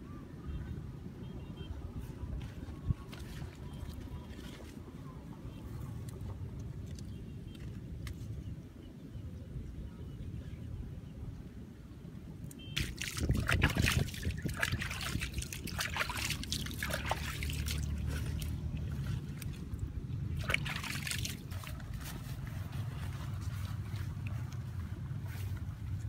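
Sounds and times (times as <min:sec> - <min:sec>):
water trickling and splashing: 0:02.5 - 0:07.2, 0:12.5 - 0:26.0
steady low rumble: 0:13.1 - 0:26.0.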